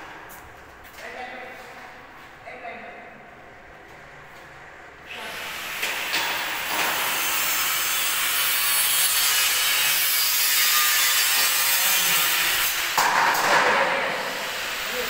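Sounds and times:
angle grinder cutting metal: 5.3s - 13.0s.

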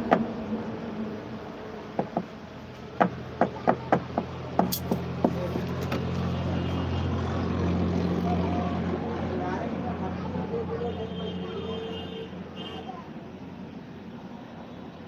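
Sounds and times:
low engine hum: 0.0s - 11.7s.

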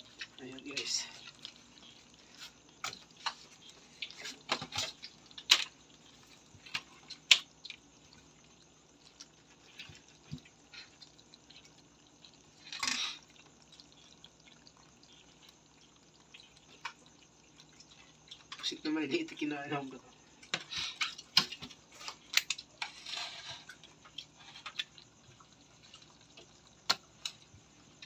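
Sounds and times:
wet clicks and knocks: 20.4s - 22.9s, 23.6s - 28.0s.

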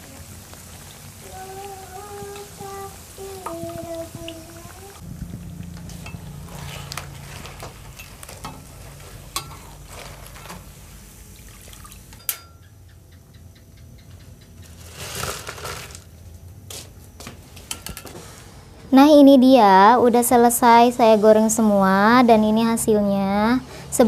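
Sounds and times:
crackers frying in hot oil: 0.0s - 12.2s, 14.4s - 16.3s.

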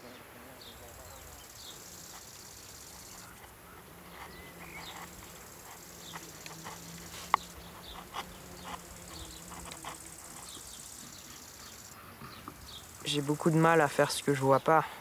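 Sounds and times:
wood chisel scraping: 2.9s - 12.5s.

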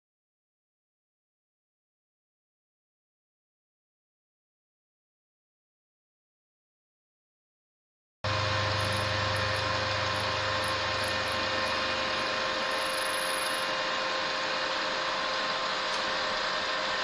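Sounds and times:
milling machine whirring: 8.3s - 17.0s.

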